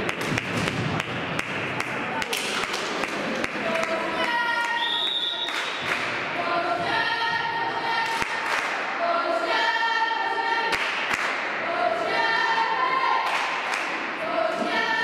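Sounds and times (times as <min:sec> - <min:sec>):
crowd chanting in unison: 0:06.0 - 0:15.0.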